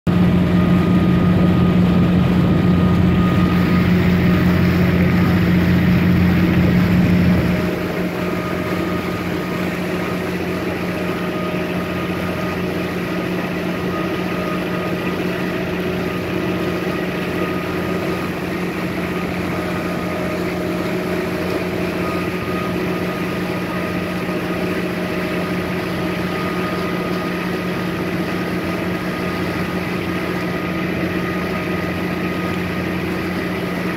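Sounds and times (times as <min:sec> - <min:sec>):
boat engine hum: 0:00.1 - 0:33.9.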